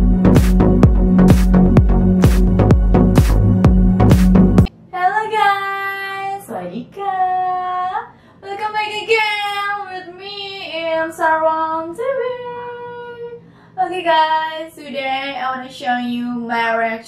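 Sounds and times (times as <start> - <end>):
electronic intro tune: 0.0 - 4.7
woman singing high: 4.9 - 17.0.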